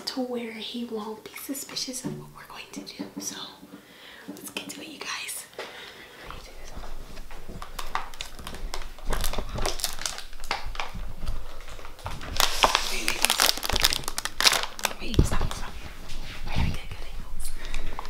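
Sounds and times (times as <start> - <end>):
plastic wrapper crinkling: 6.6 - 15.7.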